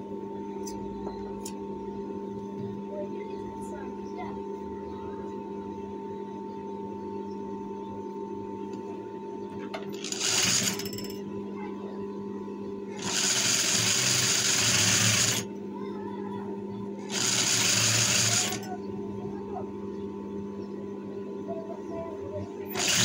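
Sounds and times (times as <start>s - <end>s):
sewing machine stitching: 10.0s - 10.9s, 13.0s - 15.4s, 17.1s - 18.6s, 22.7s - 23.0s.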